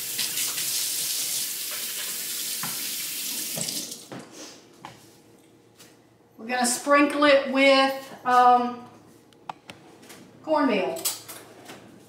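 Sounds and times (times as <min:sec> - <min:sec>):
faucet running into steel sink: 0:00.0 - 0:04.0.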